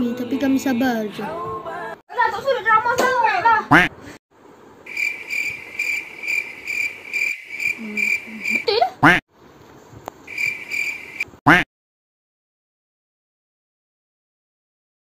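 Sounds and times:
cricket chirping: 4.9s - 8.7s, 10.3s - 11.3s.

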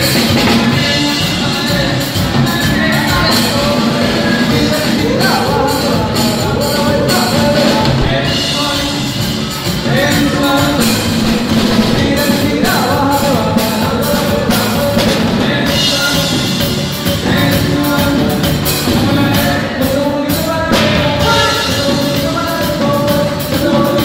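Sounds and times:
live band playing: 0.0s - 24.0s
person singing: 0.0s - 24.0s.

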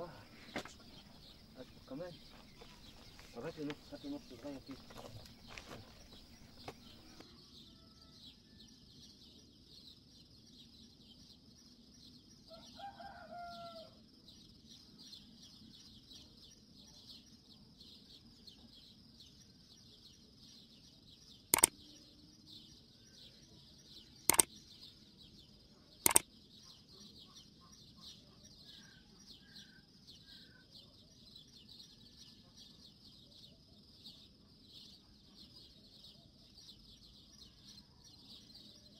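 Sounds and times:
rooster crowing: 6.9s - 8.6s, 12.5s - 14.0s.

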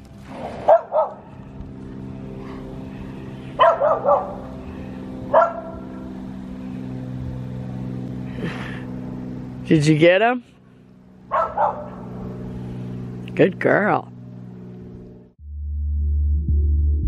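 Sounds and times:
tractor engine humming: 0.0s - 15.3s
dog barking: 0.6s - 1.2s, 3.6s - 4.5s, 5.3s - 5.8s, 11.3s - 12.1s.

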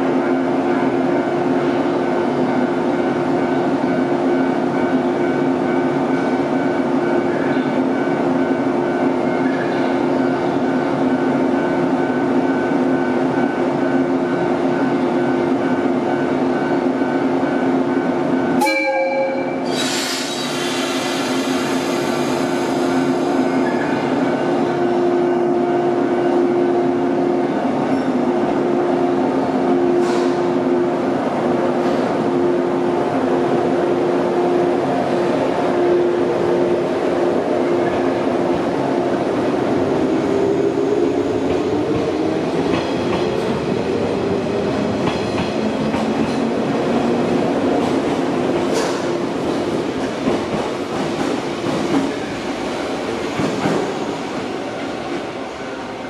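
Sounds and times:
train horn blast: 18.6s - 19.7s
train pulling away: 19.6s - 28.3s
air hissing: 19.7s - 22.5s.

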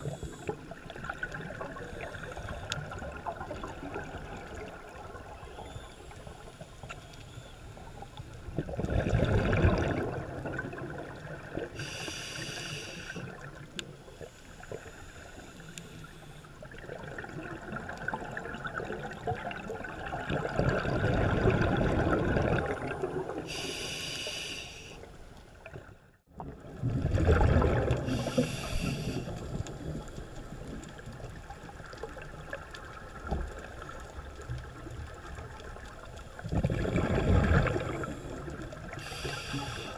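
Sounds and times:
exhaled bubbles rushing underwater: 0.0s - 5.8s, 8.4s - 12.0s, 16.6s - 23.7s, 25.6s - 39.9s
regulator inhalation hiss: 11.8s - 13.3s, 23.5s - 25.1s, 28.1s - 29.3s, 39.0s - 39.9s.

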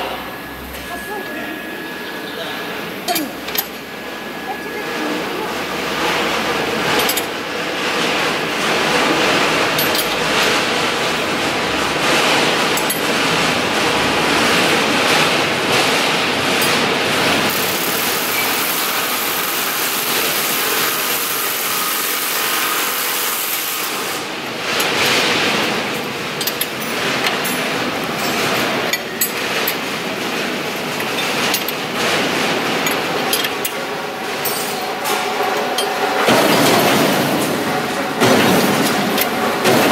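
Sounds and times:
steady workshop din: 0.0s - 39.9s
knocks and clatter: 24.6s - 39.9s.

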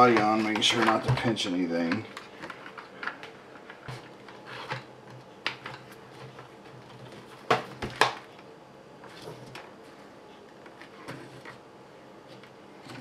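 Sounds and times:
plastic parts clicking and knocking: 0.0s - 4.1s.

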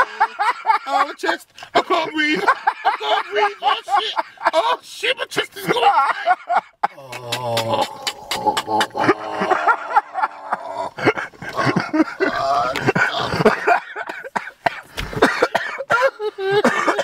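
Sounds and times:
person crying out: 7.0s - 9.5s, 12.2s - 12.9s
person coughing and choking: 11.6s - 17.0s.

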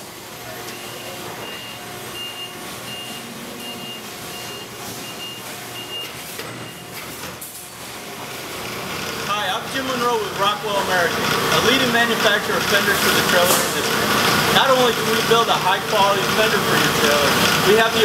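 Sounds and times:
factory machinery noise: 0.0s - 18.0s
reversing alarm beeping: 0.6s - 7.0s.

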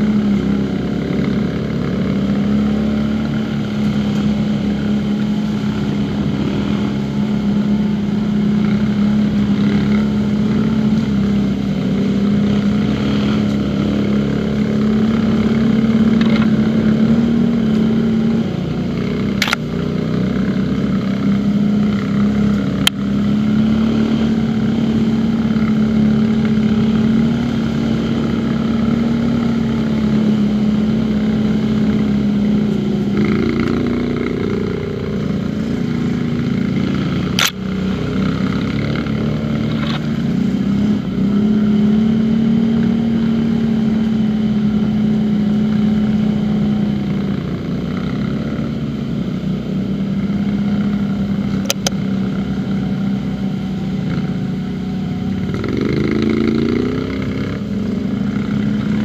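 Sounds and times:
quad bike engine running: 0.0s - 59.0s
quick clicks: 37.4s - 37.6s.

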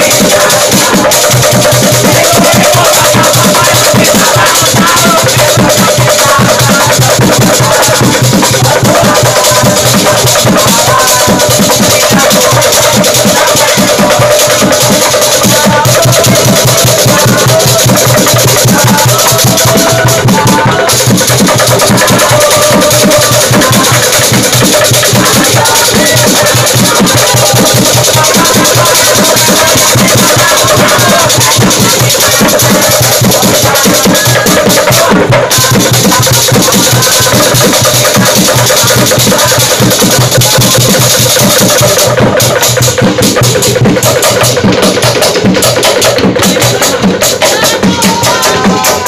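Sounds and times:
hand percussion and drums: 0.0s - 49.0s
young men singing and chanting: 0.0s - 49.0s.

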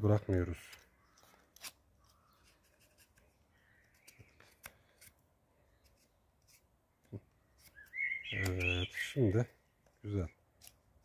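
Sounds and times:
knife scraping wood: 0.6s - 5.2s, 5.8s - 6.7s, 7.5s - 8.7s, 10.6s - 11.0s.

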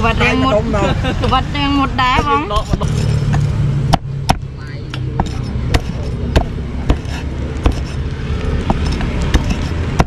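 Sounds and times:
cleaver chopping on board: 5.1s - 8.0s, 8.6s - 10.0s.

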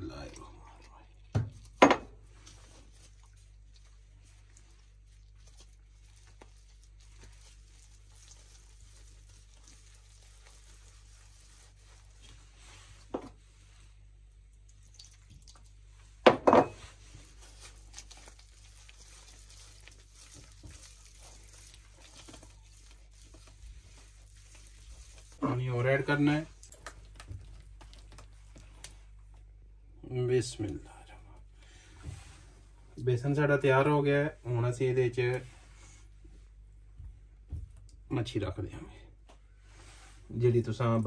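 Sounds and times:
hands squishing batter: 0.0s - 13.1s, 16.9s - 29.6s
water pouring: 14.7s - 15.8s.

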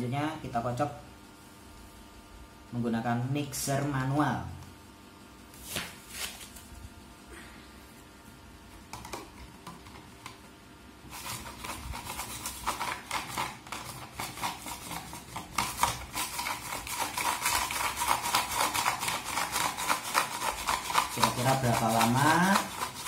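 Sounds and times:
wire whisk beating in plastic tub: 11.6s - 23.0s.

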